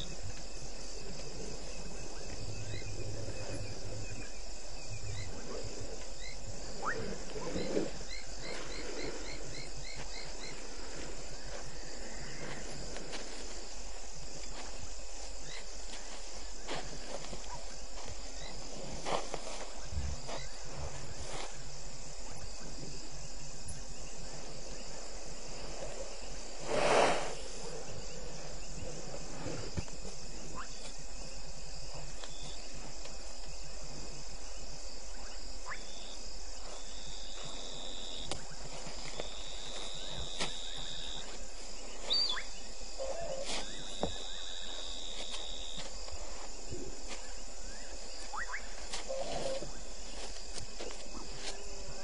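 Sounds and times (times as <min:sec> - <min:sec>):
crickets and insects chirring: 0:00.0 - 0:52.0
long insect trills: 0:00.0 - 0:52.0.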